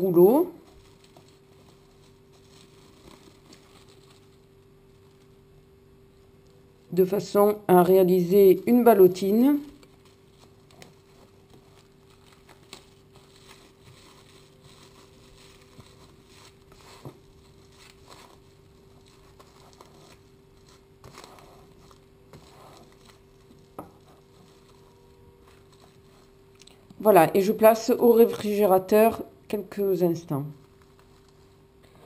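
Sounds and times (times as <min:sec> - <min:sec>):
steady faint hum: 0:00.0 - 0:32.0
cling film crinkling and rustling: 0:00.6 - 0:06.9, 0:09.3 - 0:26.9, 0:30.5 - 0:32.0.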